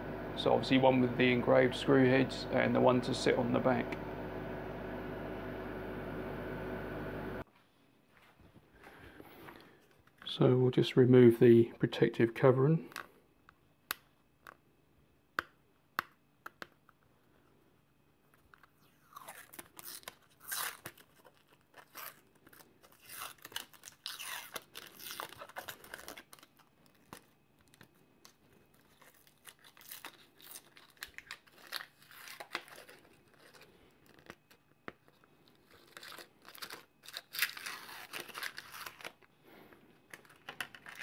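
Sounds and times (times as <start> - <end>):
protective film peeling: 18.6 - 39.3.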